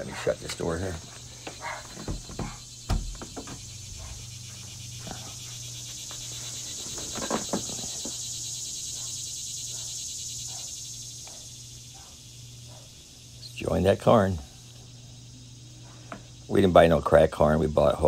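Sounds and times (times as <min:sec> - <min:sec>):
cicada chorus buzzing: 0:00.0 - 0:18.0
door shutting with a thump: 0:01.5 - 0:03.7.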